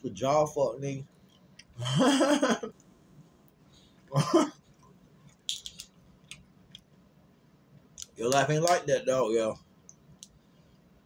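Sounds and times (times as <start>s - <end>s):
man speaking: 0.0s - 1.1s, 8.1s - 9.6s.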